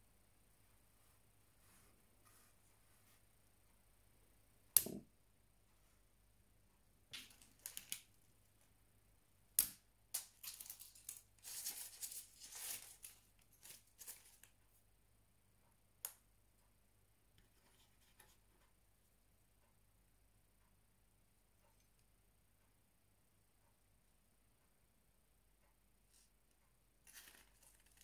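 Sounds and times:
rustling: 10.2s - 14.6s, 27.0s - 28.0s.

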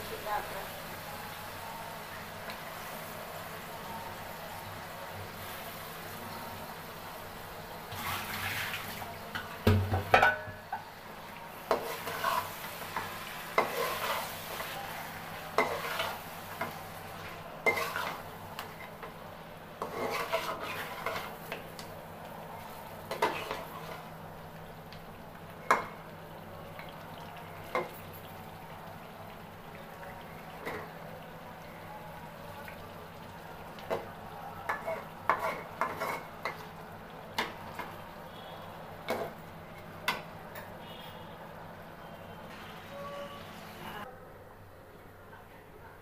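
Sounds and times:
frying sizzle: 0.0s - 44.1s
metal spatula scraping a pan: 11.7s - 12.7s, 13.5s - 14.8s, 15.5s - 16.8s, 17.6s - 19.1s, 19.8s - 21.4s, 34.7s - 36.3s.

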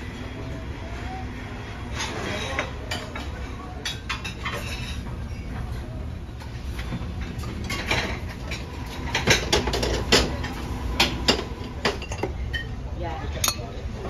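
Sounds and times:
dishes and cutlery clinking: 1.9s - 5.8s, 13.4s - 13.8s.

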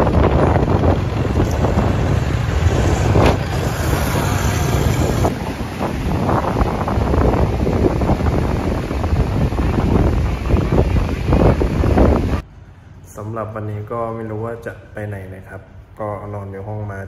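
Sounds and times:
wind buffeting microphone: 0.0s - 12.4s
deep rumble: 0.0s - 12.5s.

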